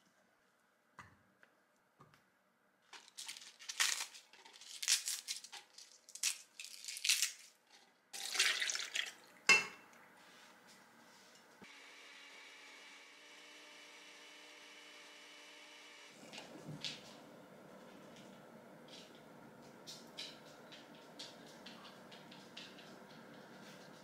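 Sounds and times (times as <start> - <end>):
leaves rustling and crinkling: 2.9 - 7.6
milk pouring and splashing: 8.2 - 9.5.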